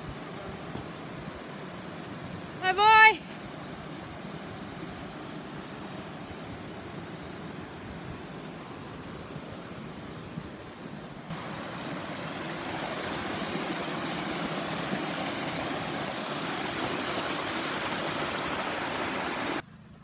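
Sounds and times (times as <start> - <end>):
water rushing over rocks: 10.6 - 19.6.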